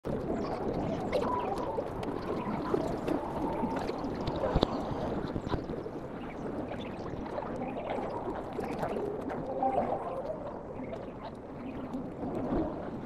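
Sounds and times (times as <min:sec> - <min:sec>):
wind on microphone: 0:00.1 - 0:13.0.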